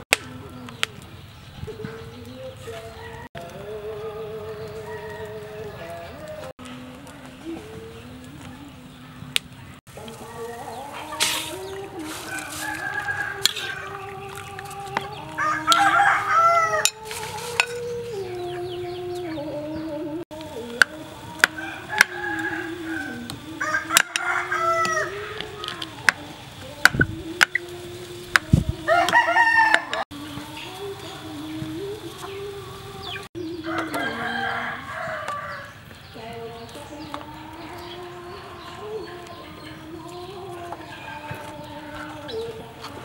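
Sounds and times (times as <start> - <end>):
chickens clucking: 0.0 - 43.0
rooster crowing: 2.6 - 6.5, 10.0 - 14.3, 15.1 - 17.0, 21.2 - 26.2, 28.9 - 30.1, 33.4 - 39.6, 40.4 - 42.5.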